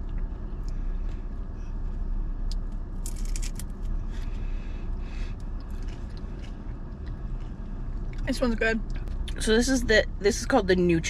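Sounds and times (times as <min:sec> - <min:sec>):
crunching bites and chewing: 0:00.0 - 0:04.5, 0:05.2 - 0:08.3
low rumble in car cabin: 0:00.0 - 0:11.0.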